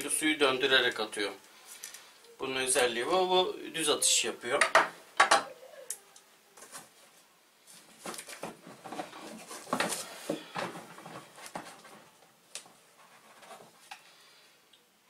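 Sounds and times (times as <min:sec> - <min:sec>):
packaging rustling: 0:07.7 - 0:14.0.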